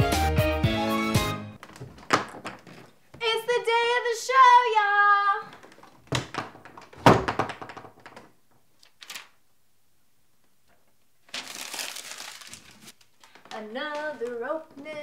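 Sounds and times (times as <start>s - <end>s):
paper rustling: 8.8s - 9.4s, 10.7s - 15.0s.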